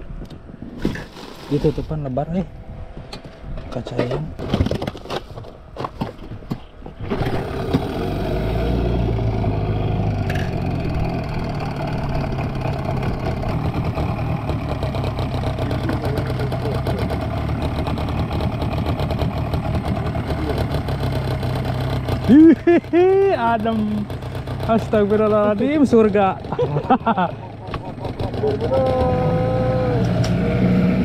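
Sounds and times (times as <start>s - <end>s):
outboard motor running: 7.0s - 31.0s.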